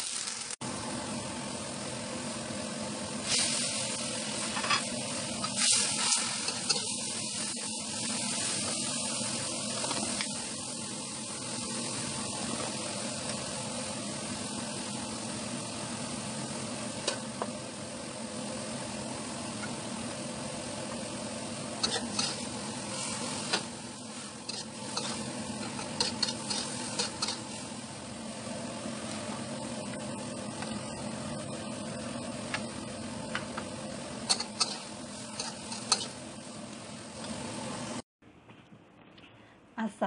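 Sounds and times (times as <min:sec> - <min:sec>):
vegetables sizzling in a wok: 0:00.0 - 0:38.0
metal spatula scraping a pan: 0:21.8 - 0:22.5, 0:24.4 - 0:27.5.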